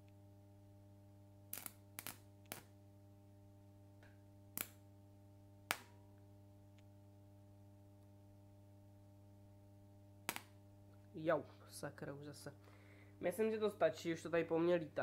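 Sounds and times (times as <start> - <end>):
transformer mains hum: 0.0 - 15.0
electric arcing snaps: 1.5 - 2.9, 4.0 - 5.0, 5.6 - 6.1, 10.2 - 10.6.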